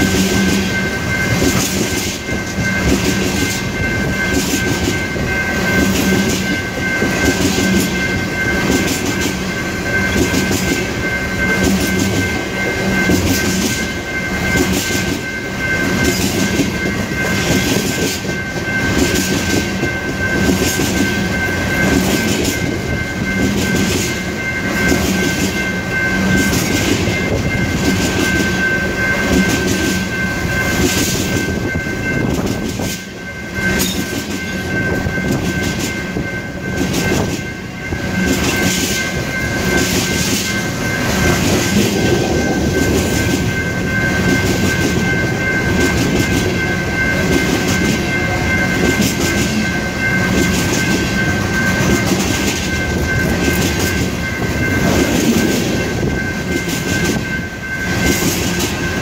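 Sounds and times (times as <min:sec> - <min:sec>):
freight train wheels clacking: 0:00.0 - 0:59.0
high-pitched ring: 0:00.0 - 0:59.0.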